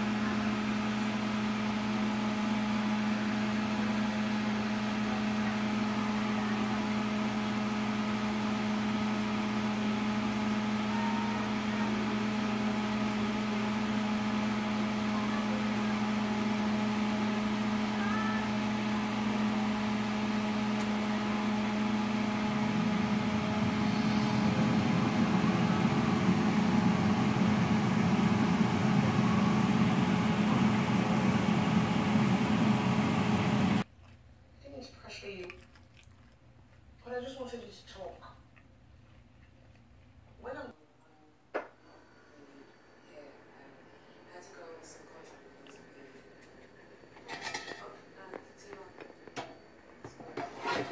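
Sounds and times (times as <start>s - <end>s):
air fryer fan humming: 0.0s - 35.4s, 41.6s - 50.9s.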